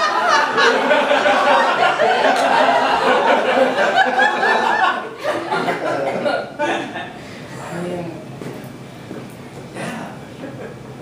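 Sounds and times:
audience laughing: 0.0 - 7.2.

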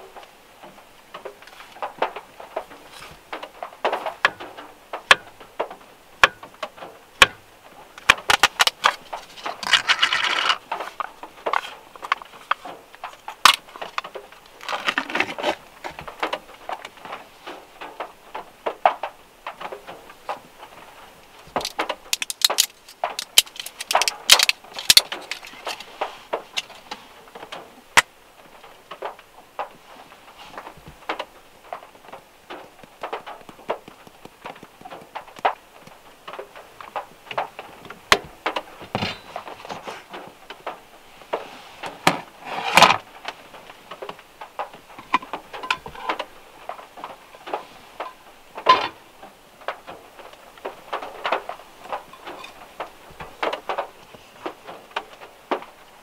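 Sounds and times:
plastic cup rustling and crinkling: 8.0 - 18.4, 19.6 - 28.1, 30.0 - 55.7.

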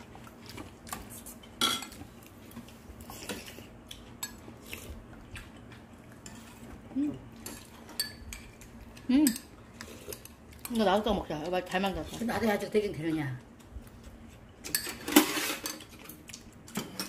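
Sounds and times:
utensils clinking on ceramic bowls: 7.4 - 11.0, 14.6 - 16.1.

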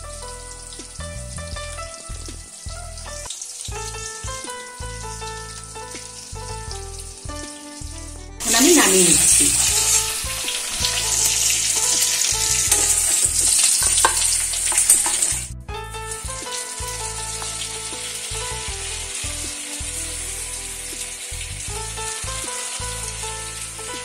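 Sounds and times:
patties sizzling in hot oil: 0.0 - 24.0.

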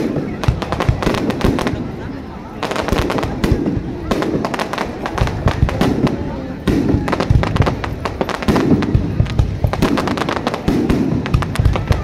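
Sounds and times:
firework crackling: 0.0 - 12.0
firework shells booming: 0.0 - 12.0.

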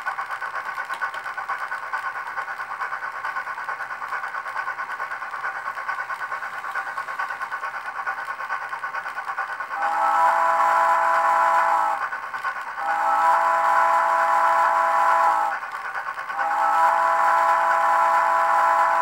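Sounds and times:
model train steam chuffs: 0.0 - 19.0
steam whistle: 9.8 - 12.0, 12.8 - 15.6, 16.4 - 19.0.

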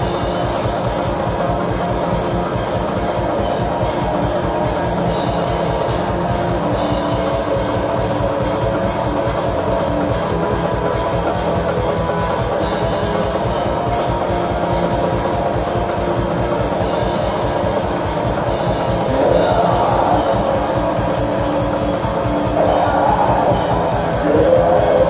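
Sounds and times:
distorted electric guitars: 0.0 - 25.0
fast drumming on drum kit: 0.0 - 25.0
harsh vocal: 18.4 - 25.0.

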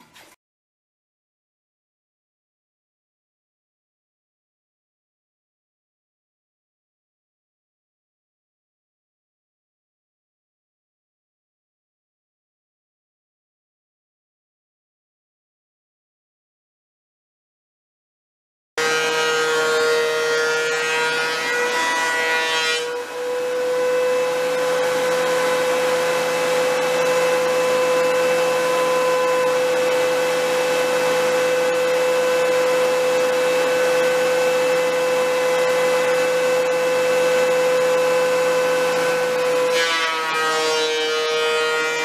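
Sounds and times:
thickness planer whining: 18.8 - 42.0.

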